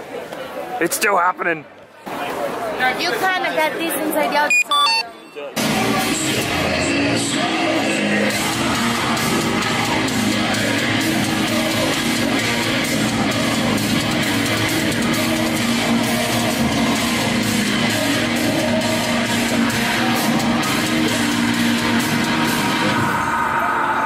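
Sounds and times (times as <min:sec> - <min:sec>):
drums: 0:05.6 - 0:23.6
heavy electric guitars: 0:05.6 - 0:24.0.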